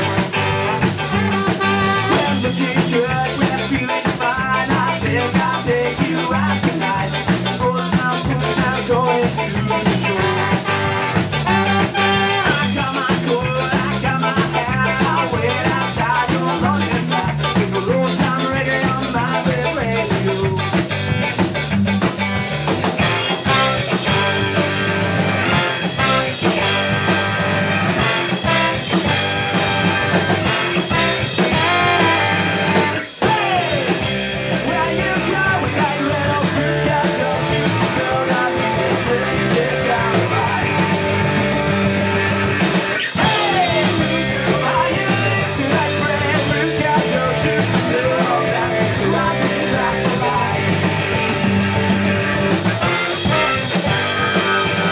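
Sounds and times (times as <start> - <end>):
person singing: 0.0 - 20.9, 25.5 - 41.4, 43.0 - 51.6, 52.8 - 54.9
ska punk band playing: 0.0 - 54.9.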